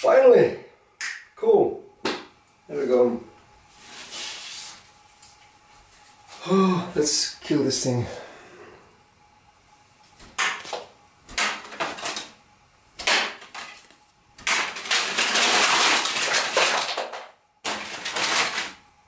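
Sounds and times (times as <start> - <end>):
cards sliding across wooden table: 3.7 - 4.9
playing cards collapsing: 13.0 - 18.8.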